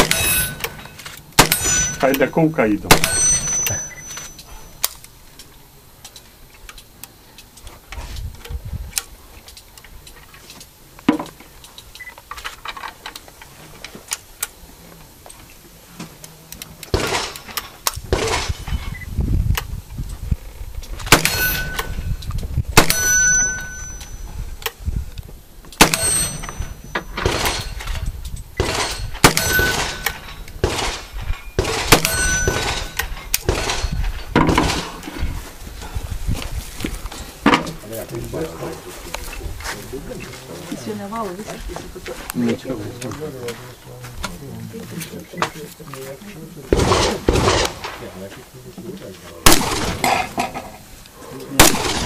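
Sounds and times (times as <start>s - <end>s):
gunshots: 0.0s - 4.3s, 16.9s - 18.7s, 21.1s - 21.9s, 22.8s - 23.8s, 25.8s - 27.9s, 28.6s - 35.0s, 46.7s - 48.1s, 49.4s - 50.4s, 51.5s - 52.0s
metallic ring of steel target: 0.0s - 4.8s, 21.1s - 22.2s, 22.8s - 24.5s, 25.8s - 28.0s, 28.6s - 35.0s.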